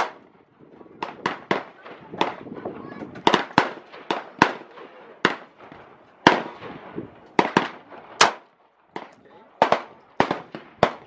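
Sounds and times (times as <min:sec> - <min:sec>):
handgun shots: 0:00.0 - 0:00.2
gunshot echo: 0:00.0 - 0:00.3, 0:01.0 - 0:02.5, 0:03.2 - 0:11.0.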